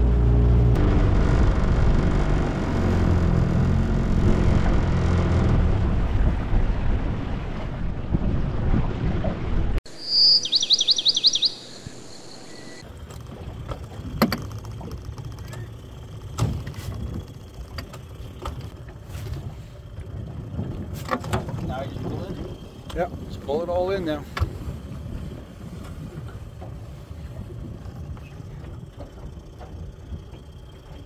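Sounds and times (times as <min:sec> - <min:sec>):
boat motor running: 0:00.0 - 0:09.6, 0:12.5 - 0:31.0
bird trilling: 0:09.9 - 0:12.8.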